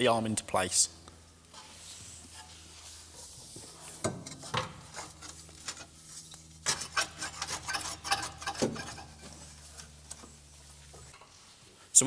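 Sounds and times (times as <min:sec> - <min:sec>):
metal rubbing: 0:01.5 - 0:10.2.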